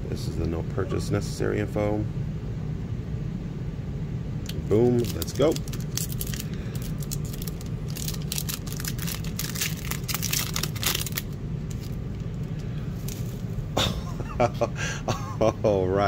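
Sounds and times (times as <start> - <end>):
low hum: 0.0 - 16.0
foil pack tearing: 4.8 - 12.0
foil crinkling: 4.8 - 13.5.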